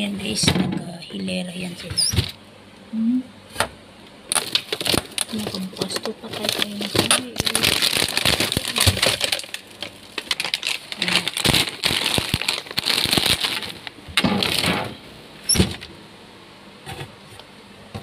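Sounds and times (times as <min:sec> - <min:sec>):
plastic wrapping crinkling: 0:04.3 - 0:14.8.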